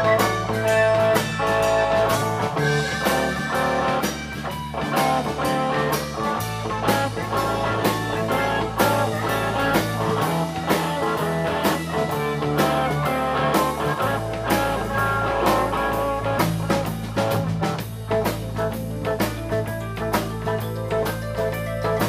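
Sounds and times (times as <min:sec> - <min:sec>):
harmonica: 0:00.0 - 0:16.6
bass guitar: 0:00.0 - 0:22.0
drum kit: 0:00.0 - 0:22.0
electric guitar: 0:00.0 - 0:22.0.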